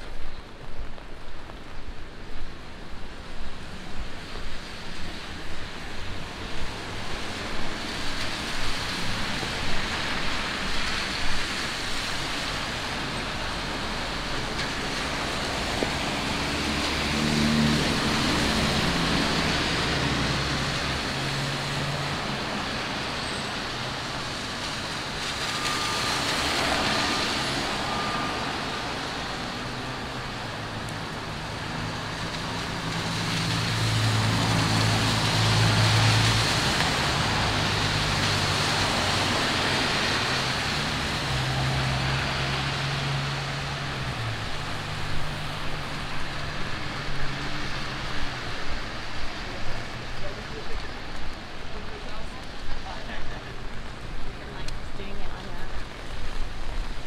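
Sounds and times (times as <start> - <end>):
rain: 0.0 - 57.0
tyres hissing on wet road: 0.0 - 57.0.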